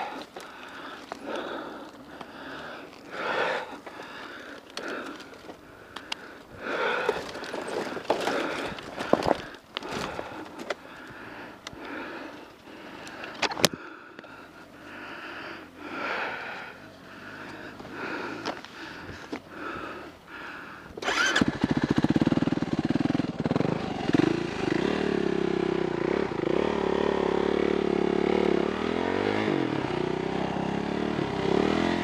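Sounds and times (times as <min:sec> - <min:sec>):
person breathing hard: 0:00.0 - 0:21.4
clicks and knocks on gravel: 0:03.8 - 0:10.8.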